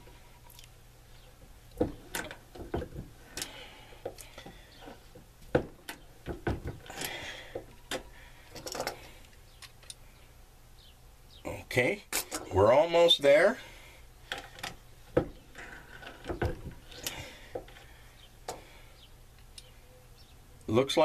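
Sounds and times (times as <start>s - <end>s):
metallic clicks and knocks: 5.5s - 10.0s.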